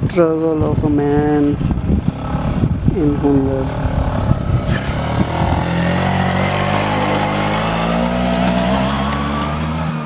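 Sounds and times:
scooter engine labouring: 1.6 - 10.0.

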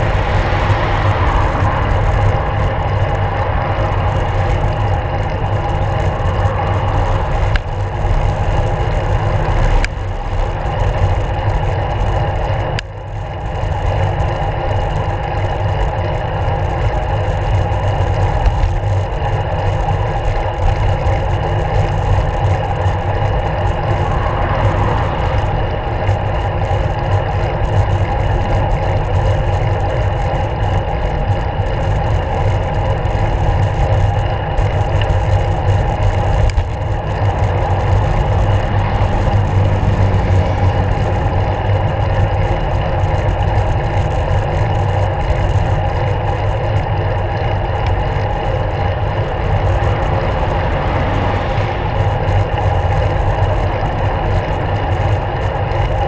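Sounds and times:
wind rush: 0.0 - 10.6, 22.6 - 27.7, 48.5 - 53.9
car traffic: 0.0 - 56.0
road vibration: 0.0 - 56.0.

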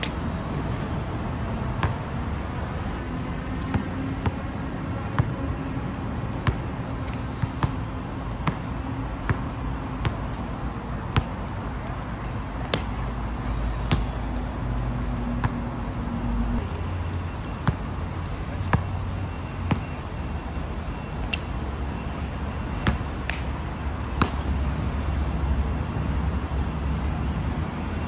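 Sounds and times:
basketball bouncing on hard court: 6.3 - 7.8, 8.4 - 8.7, 17.4 - 17.9.

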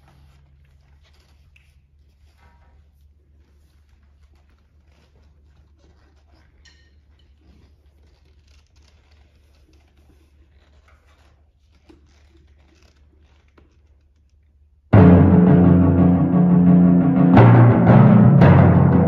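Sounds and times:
faint rustles and clicks: 0.0 - 14.9.

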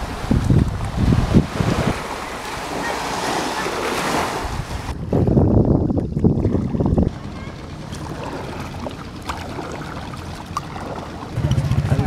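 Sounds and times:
small waves washing onto sand: 0.0 - 5.0
wind buffeting microphone: 0.0 - 12.0.

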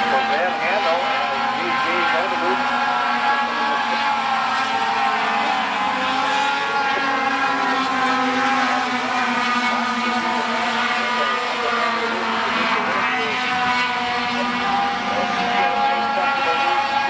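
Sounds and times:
truck engines droning: 0.0 - 17.0.

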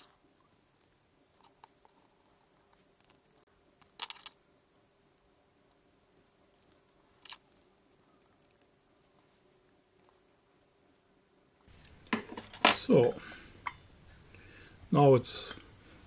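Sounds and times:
small metallic clicks and clinks: 5.7 - 8.7.

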